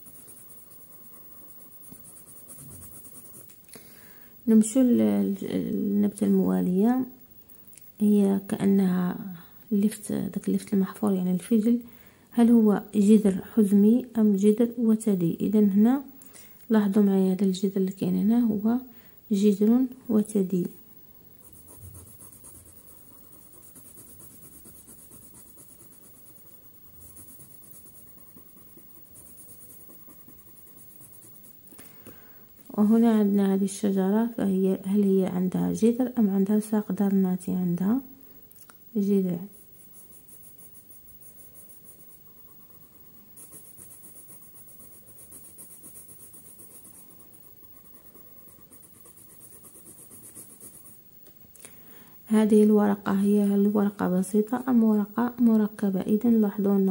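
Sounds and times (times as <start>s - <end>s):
pencil scratching on paper: 0.0s - 3.5s, 21.4s - 31.6s, 39.4s - 51.0s.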